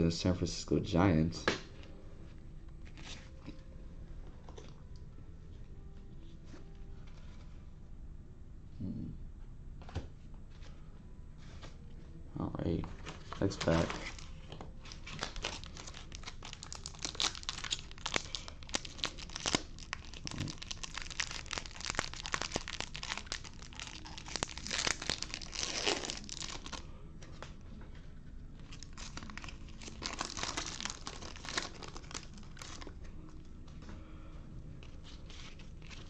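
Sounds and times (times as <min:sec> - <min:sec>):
foil wrapper crinkling and tearing: 0:13.0 - 0:26.8, 0:28.6 - 0:33.0, 0:35.0 - 0:36.0.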